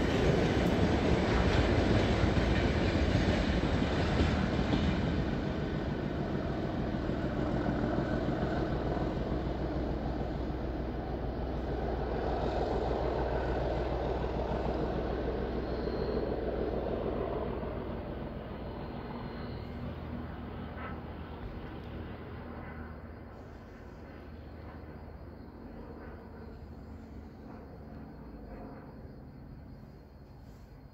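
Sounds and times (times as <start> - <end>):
diesel locomotive engine drone: 0.0 - 30.9.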